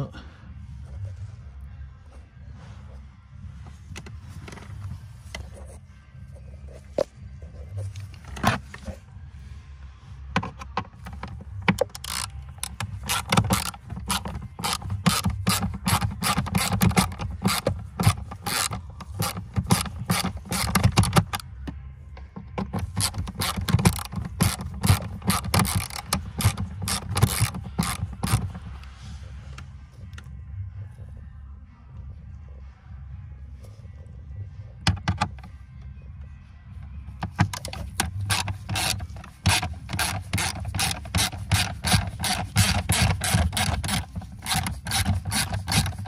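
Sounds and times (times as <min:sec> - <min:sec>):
hand ratchet clicking: 0:10.4 - 0:21.4, 0:22.5 - 0:28.7, 0:37.2 - 0:46.0.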